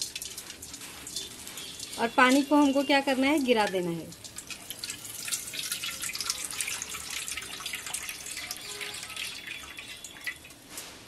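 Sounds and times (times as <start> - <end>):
water trickling and dripping: 0.0 - 10.8.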